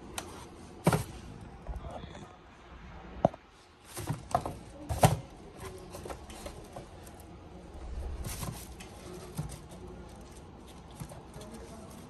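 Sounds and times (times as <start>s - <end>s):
rustling wrapping paper: 7.8s - 12.0s.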